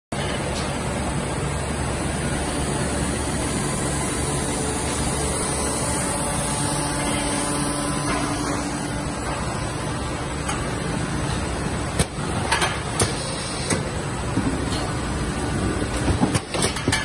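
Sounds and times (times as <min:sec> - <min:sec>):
low hum: 0:00.2 - 0:12.0
packing machine running: 0:00.2 - 0:17.0.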